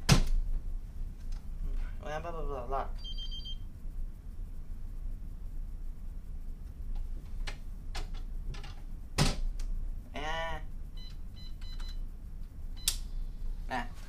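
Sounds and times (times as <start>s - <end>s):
keypad beeps: 3.0s - 3.6s, 11.0s - 12.0s.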